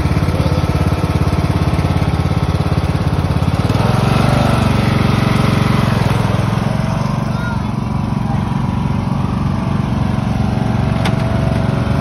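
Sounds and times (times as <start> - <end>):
lawn tractor engine running: 0.0 - 12.0.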